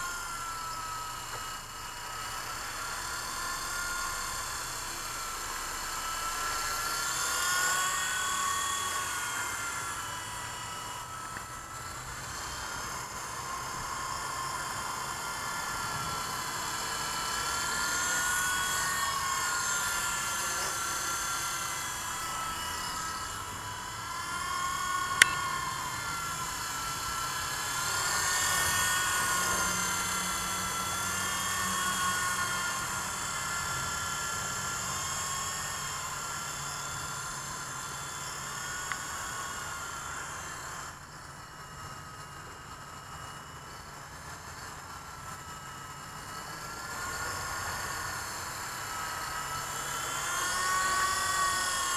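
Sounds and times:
toy helicopter motor whine: 0.0 - 51.9
sharp click: 25.2 - 25.5.

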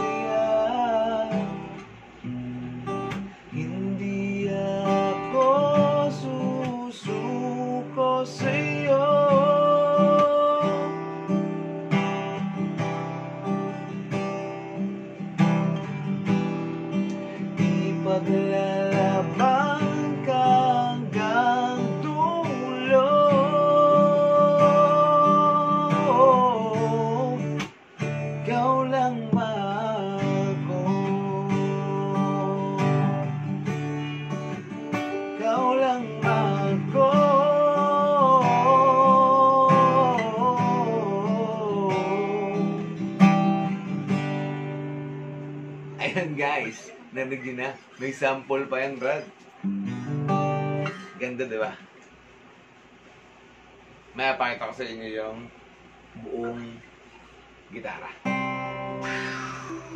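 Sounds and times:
man singing a ballad: 0.0 - 1.8, 3.5 - 11.3, 17.6 - 27.6, 28.3 - 33.6, 35.2 - 43.0
strummed acoustic guitar: 0.0 - 59.9.

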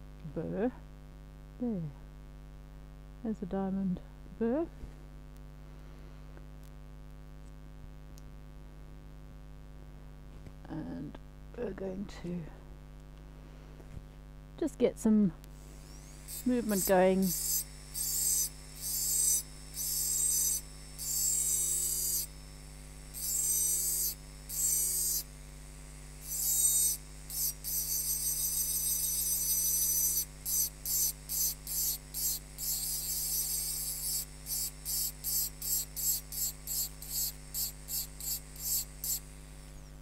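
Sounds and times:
drill motor humming: 15.4 - 40.0
drill burr grinding glass: 15.6 - 40.0.

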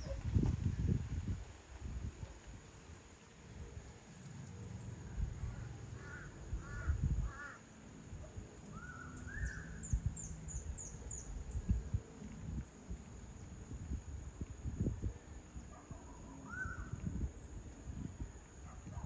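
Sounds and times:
caw-like bird calls: 5.5 - 7.7.

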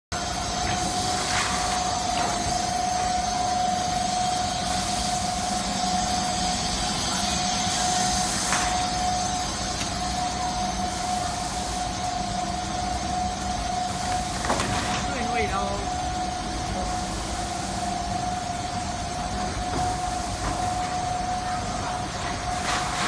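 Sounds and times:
machine motors and fan whirring: 0.1 - 23.0.

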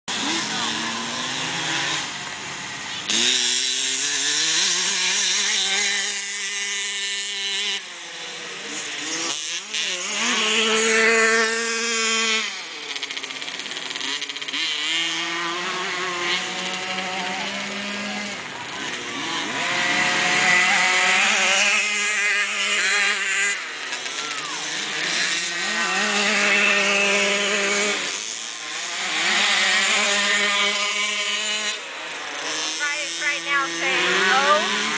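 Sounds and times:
engine revving: 0.1 - 34.9.

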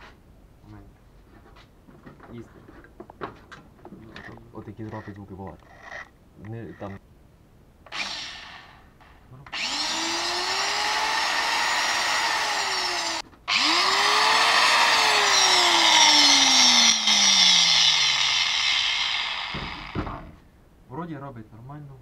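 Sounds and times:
angle grinder whine: 7.9 - 20.2.

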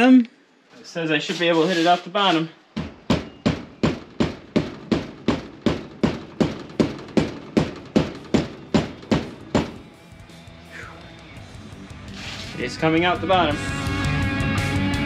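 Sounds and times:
rubber mallet pounding metal: 2.7 - 9.8.

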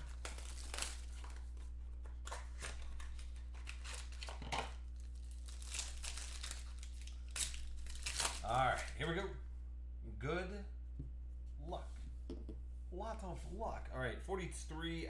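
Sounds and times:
plastic wrapping crinkling and tearing: 0.0 - 1.6, 2.2 - 9.0
steady low hum: 0.0 - 15.0.

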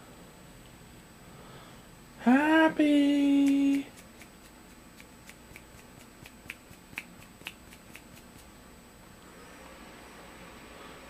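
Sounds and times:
fingers snapping: 3.4 - 8.5.

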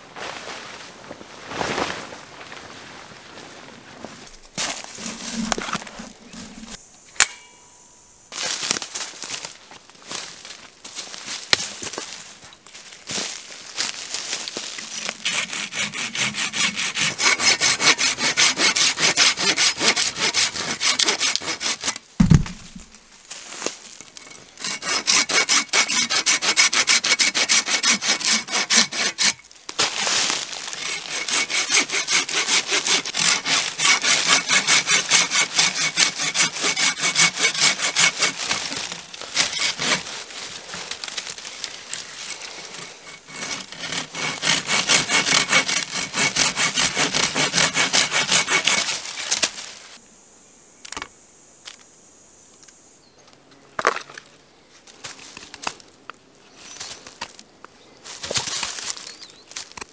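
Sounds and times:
hand saw cutting branch: 4.6 - 7.5, 14.2 - 22.8, 24.1 - 49.8, 58.2 - 59.2
low thump: 22.2 - 23.0.

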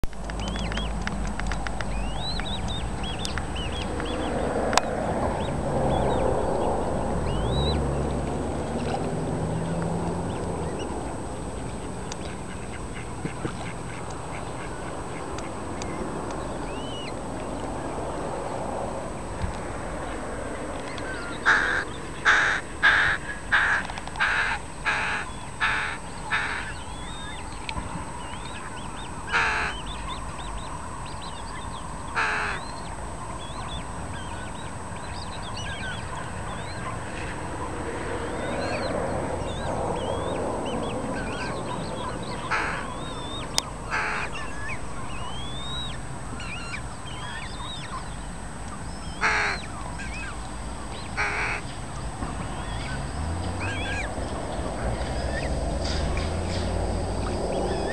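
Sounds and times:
faint songbird twittering: 1.8 - 18.0, 20.8 - 57.9
loud harsh bird calls: 20.8 - 57.9.

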